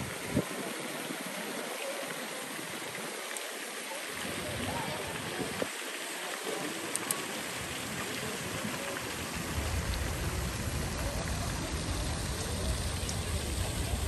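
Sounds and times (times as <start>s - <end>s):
fountain water splashing: 0.0s - 14.0s
low rumble: 9.2s - 14.0s.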